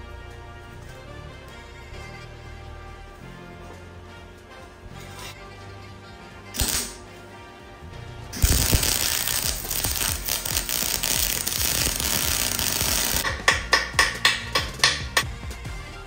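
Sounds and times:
arc welding crackle: 0:06.5 - 0:07.0, 0:08.4 - 0:15.0
hammer knocking on metal: 0:13.2 - 0:15.3.

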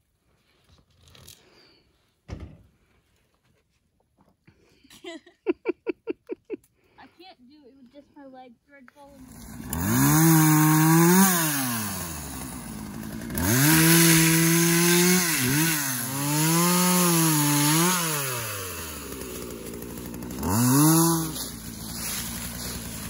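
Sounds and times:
chainsaw revving and idling: 0:09.0 - 0:23.0.

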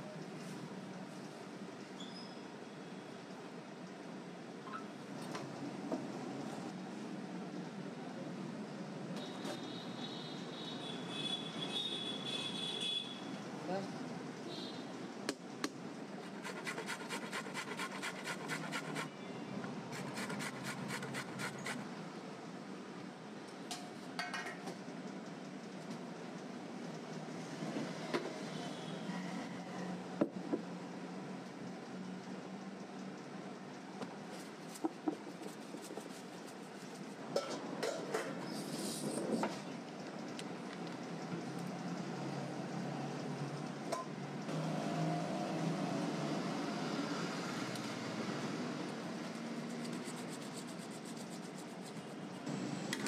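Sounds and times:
steady background noise: 0:00.0 - 0:53.0
carrot rasping on metal grater: 0:16.2 - 0:19.2, 0:19.9 - 0:21.8, 0:49.4 - 0:52.3.

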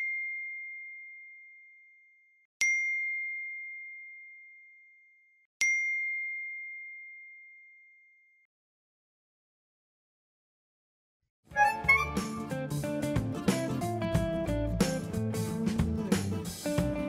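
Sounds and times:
phone notification ding: 0:11.6 - 0:12.4.

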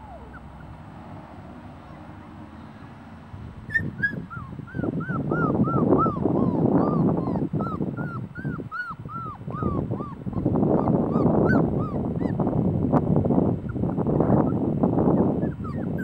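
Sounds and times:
puppies whining: 0:00.0 - 0:00.8, 0:03.6 - 0:12.4, 0:13.6 - 0:16.0.

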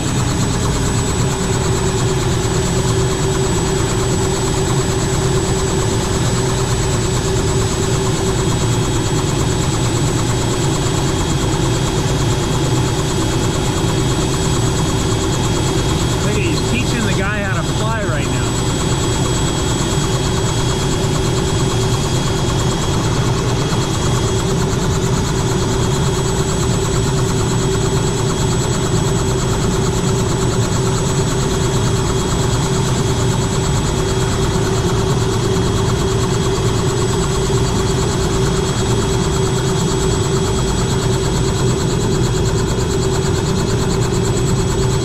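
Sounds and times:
helicopter engine and rotor drone: 0:00.0 - 0:45.0
high whine: 0:16.2 - 0:18.8.

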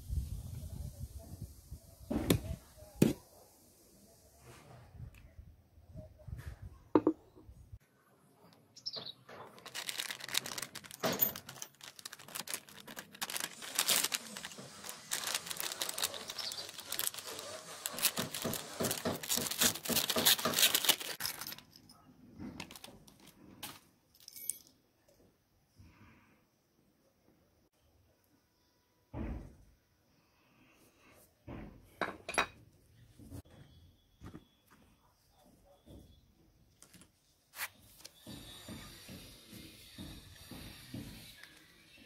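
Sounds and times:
plastic packet crinkling: 0:09.5 - 0:21.8, 0:22.6 - 0:23.8.

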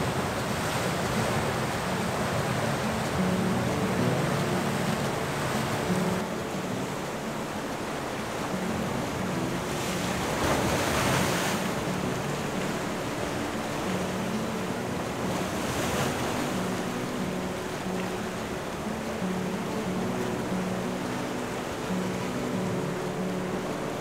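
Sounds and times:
sea surf washing against coast: 0:00.0 - 0:24.0.

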